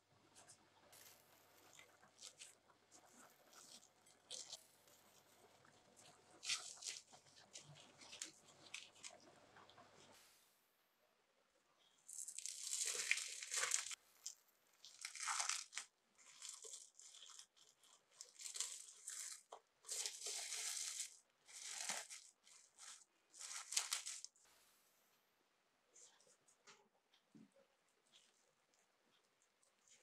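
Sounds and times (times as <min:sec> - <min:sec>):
plastic film crinkling: 0:12.1 - 0:24.4.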